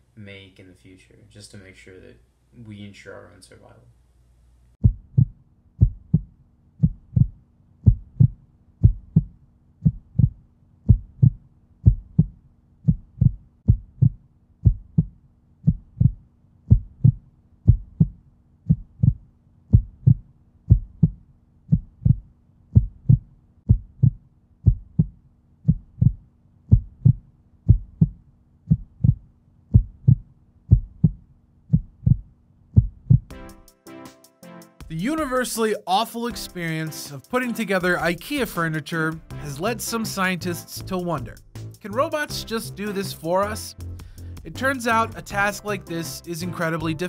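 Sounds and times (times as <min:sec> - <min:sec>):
heartbeat thumps: 0:04.8 - 0:33.6, 0:43.7 - 0:45.6.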